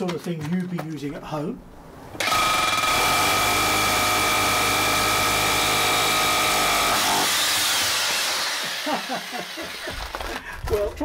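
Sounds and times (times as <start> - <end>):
hammer drill drilling into concrete: 2.2 - 10.4.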